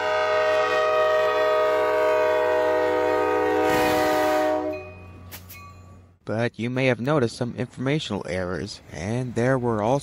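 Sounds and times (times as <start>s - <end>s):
locomotive air horn: 0.0s - 5.2s.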